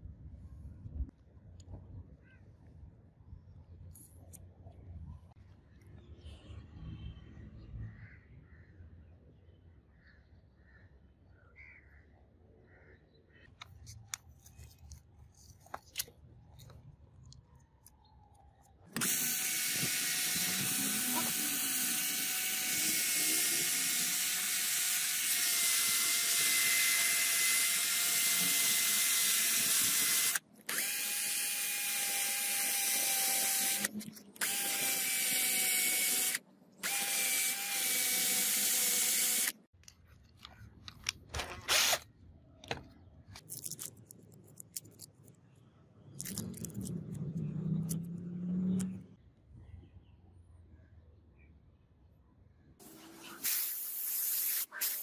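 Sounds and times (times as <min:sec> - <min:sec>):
cordless drill whining: 0:19.0 - 0:39.6.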